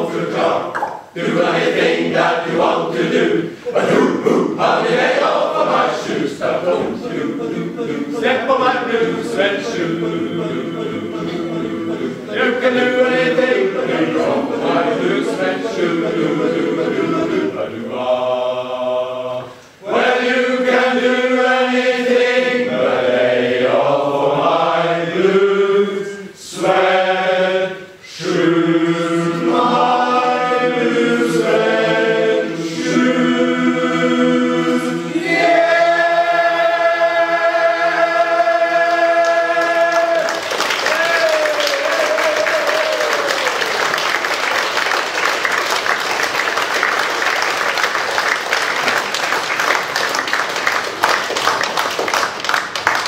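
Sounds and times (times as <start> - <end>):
men's choir singing a cappella: 0.0 - 43.9
gliding cheer: 35.2 - 53.0
audience applause: 38.9 - 53.0.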